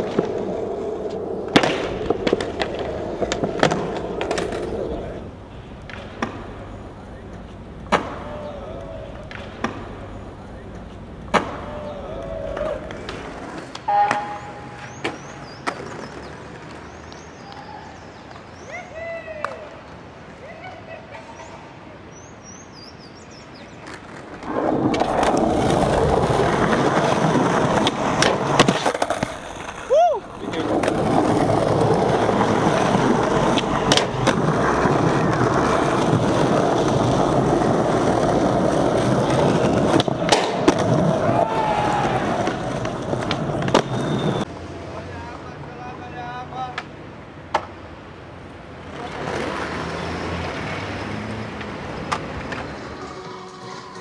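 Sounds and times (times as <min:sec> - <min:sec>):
skateboard clacking on concrete: 0:00.0 - 0:17.6, 0:23.7 - 0:44.5, 0:46.6 - 0:47.8, 0:51.6 - 0:54.0
skateboard wheels rolling: 0:00.0 - 0:45.0, 0:45.9 - 0:54.0
person shouting: 0:18.7 - 0:19.7, 0:29.9 - 0:30.3, 0:41.2 - 0:42.4.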